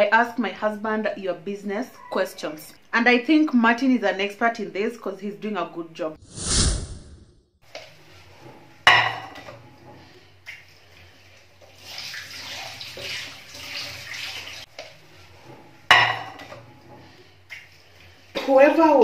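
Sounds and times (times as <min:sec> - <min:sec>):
cookware clattering: 0:08.9 - 0:09.6, 0:15.9 - 0:16.6
sponge scrubbing pots: 0:09.6 - 0:17.2.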